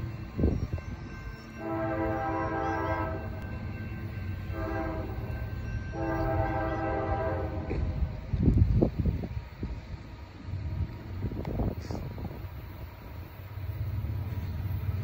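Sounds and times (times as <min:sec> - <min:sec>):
locomotive air horn blasts: 0:01.6 - 0:03.4, 0:04.5 - 0:05.3, 0:05.9 - 0:08.0.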